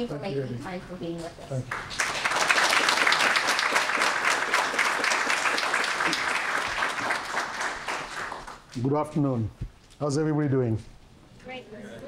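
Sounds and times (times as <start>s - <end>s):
audience applauding: 1.6s - 8.8s.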